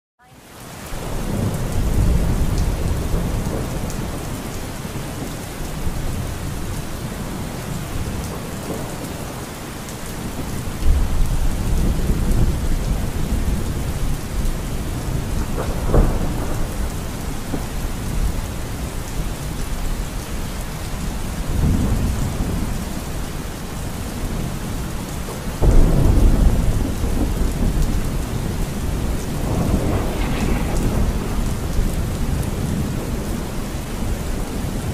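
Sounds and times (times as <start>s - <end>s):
steady rain hiss: 0.3s - 34.9s
thunder rolling: 1.0s - 9.4s, 10.3s - 19.8s, 25.6s - 34.9s.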